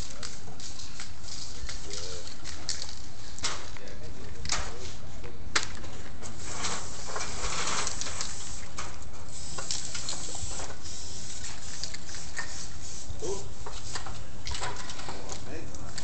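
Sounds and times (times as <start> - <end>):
spray-paint cans hissing: 0.0 - 3.4, 6.2 - 14.6.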